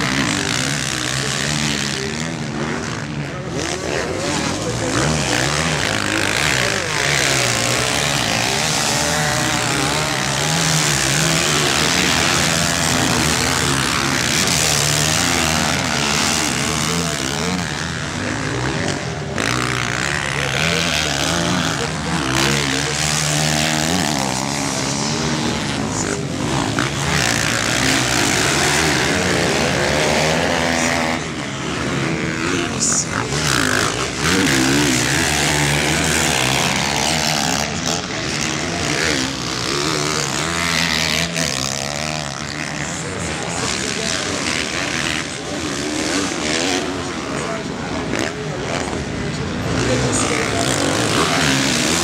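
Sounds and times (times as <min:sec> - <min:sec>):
motocross bikes revving past: 0:00.0 - 0:52.0.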